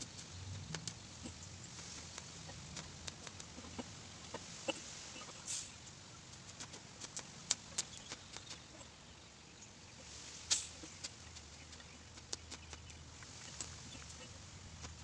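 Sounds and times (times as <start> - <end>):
small clicks and crackles: 0.0 - 3.9, 6.3 - 8.7, 10.5 - 15.0.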